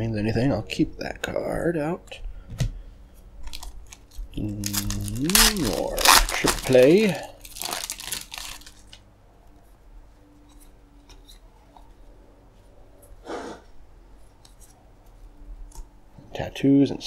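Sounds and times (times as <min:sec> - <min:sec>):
plastic wrapper crinkling: 0:03.4 - 0:09.0.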